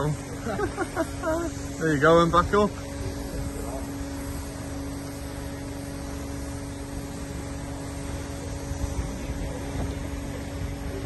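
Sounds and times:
convertible roof pump motor hum: 0:00.0 - 0:11.0.

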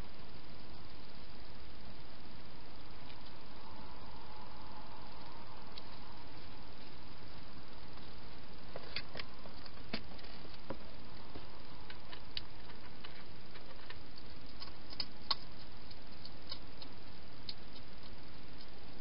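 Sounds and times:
steady hiss: 0:00.0 - 0:19.0
hedgehog chewing and scrabbling: 0:07.9 - 0:19.0.

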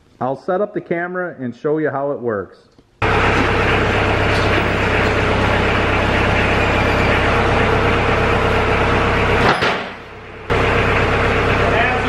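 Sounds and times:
loader hydraulics raising: 0:03.0 - 0:12.0
tractor diesel engine running: 0:03.0 - 0:12.0.

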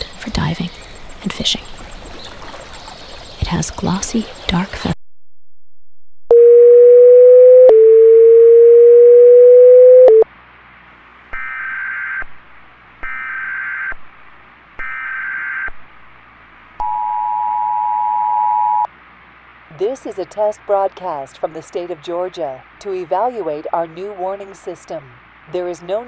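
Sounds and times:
steady low alert tone: 0:06.3 - 0:10.2, 0:16.8 - 0:18.9
two-tone attention signal: 0:06.3 - 0:10.2, 0:16.8 - 0:18.9.

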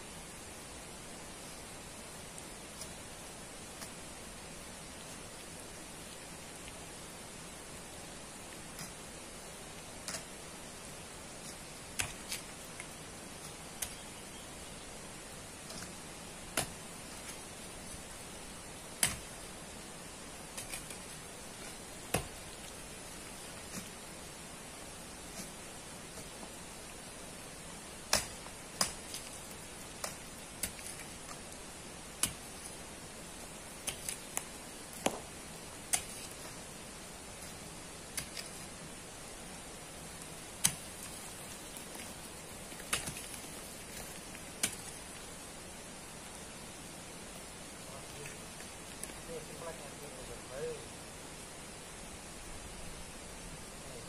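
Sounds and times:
steady hiss: 0:00.0 - 0:54.0
digging tool striking gravel: 0:19.0 - 0:19.5, 0:20.5 - 0:22.7, 0:28.0 - 0:31.4, 0:32.1 - 0:32.8, 0:33.8 - 0:36.6, 0:37.5 - 0:38.6, 0:40.6 - 0:45.2.

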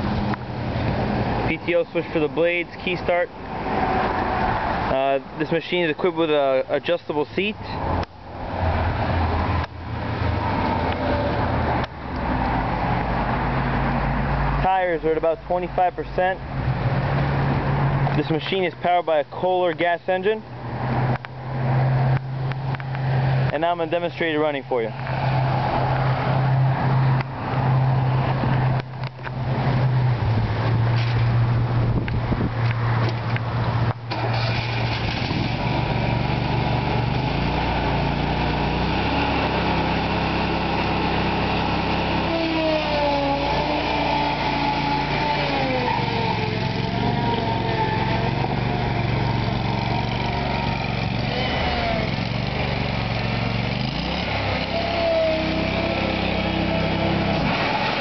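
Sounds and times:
mower engine running: 0:34.1 - 0:58.0.

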